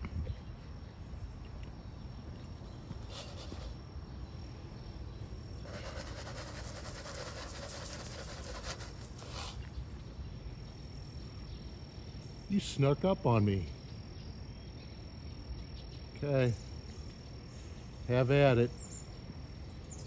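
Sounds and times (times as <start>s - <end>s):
faint insect tone: 0.0s - 20.0s
bird seed pattering on ground: 5.7s - 9.8s.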